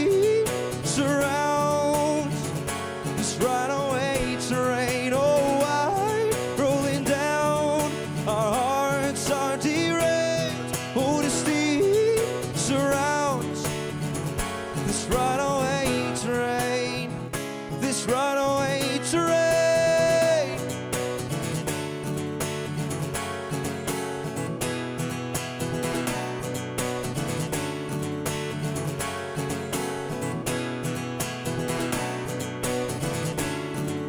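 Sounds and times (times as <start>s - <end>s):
man singing wordless melody: 0.0s - 2.5s, 3.1s - 13.9s, 14.8s - 20.7s
acoustic guitar strumming: 0.0s - 34.0s.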